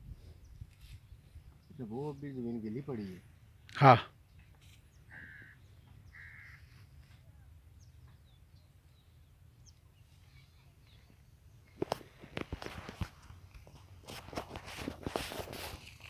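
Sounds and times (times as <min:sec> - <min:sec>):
crow cawing: 0:05.1 - 0:06.9.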